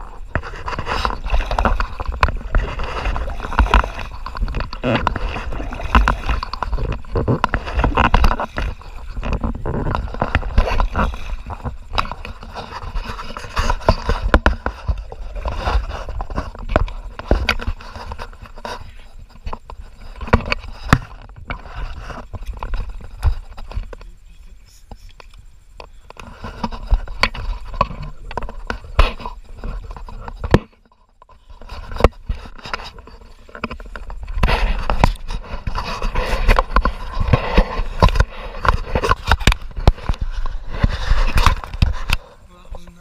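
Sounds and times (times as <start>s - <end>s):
water splashing: 0.0s - 25.4s
wind rumbling on microphone: 0.0s - 43.0s.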